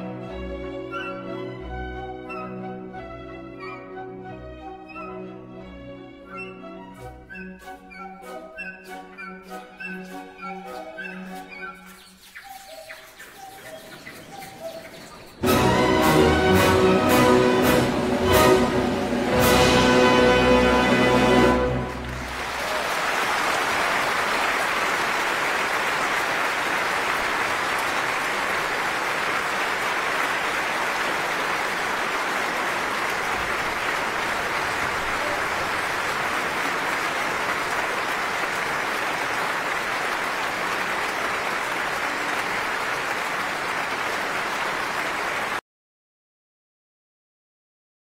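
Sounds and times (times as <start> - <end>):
audience applauding: 14.6 - 45.6.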